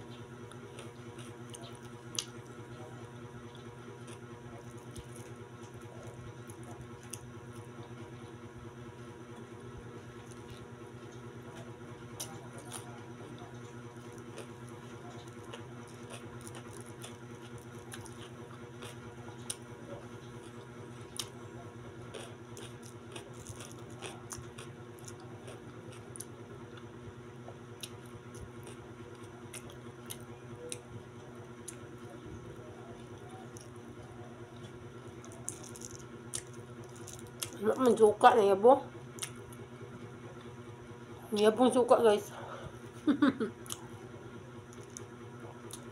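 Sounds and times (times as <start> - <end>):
steady low hum: 0.0 - 45.9
chewing and mouth smacks: 0.4 - 2.6, 3.5 - 7.7, 10.1 - 21.4, 22.1 - 26.9, 27.8 - 30.8, 31.6 - 32.0, 32.9 - 37.6, 39.1 - 39.6, 43.6 - 44.0, 44.7 - 45.9.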